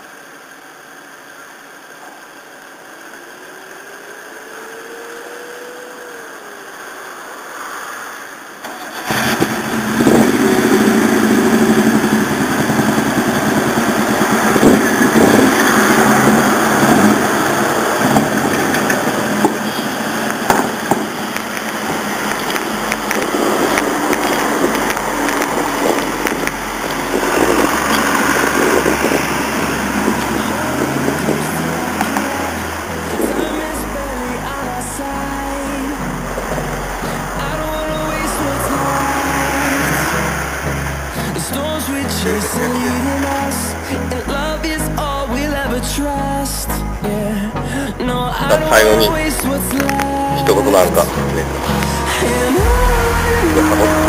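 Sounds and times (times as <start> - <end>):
car engine: 0.0 - 54.0.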